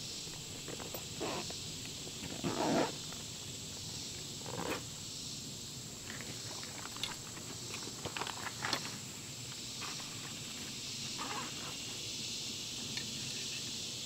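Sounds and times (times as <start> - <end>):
insects hissing: 0.0 - 14.0
backpack fabric rustling: 0.6 - 3.1.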